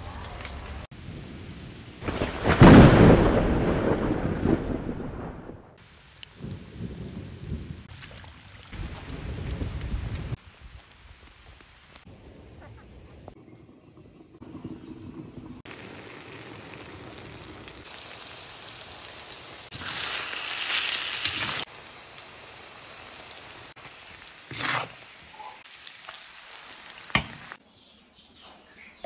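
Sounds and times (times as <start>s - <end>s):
mushrooms sizzling in wok: 15.7s - 27.6s.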